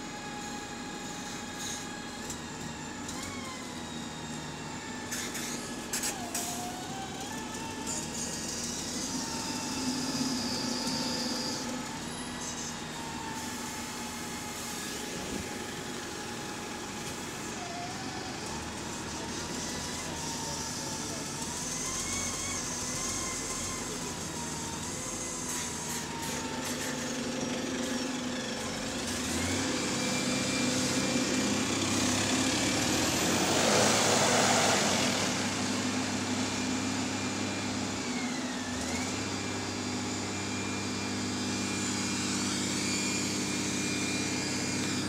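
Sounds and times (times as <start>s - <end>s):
diesel bus engine idling: 6.6s - 34.2s.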